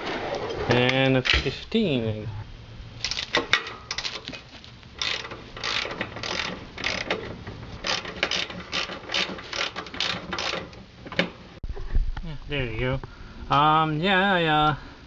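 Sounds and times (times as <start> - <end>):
ratchet wrench clicking: 3.0 - 4.3, 5.0 - 7.2, 7.8 - 10.8.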